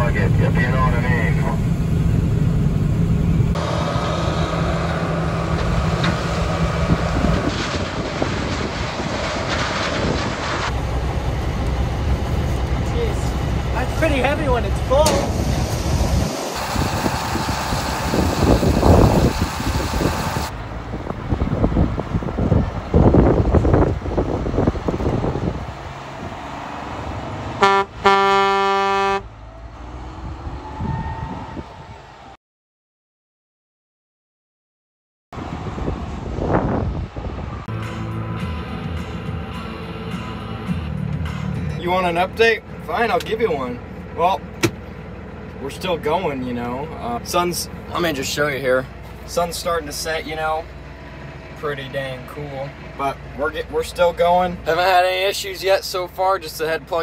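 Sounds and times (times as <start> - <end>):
combine harvester running: 0.0 - 30.1, 42.1 - 57.0
truck driving past: 0.0 - 32.4, 46.7 - 54.8
truck air horn: 27.6 - 29.4.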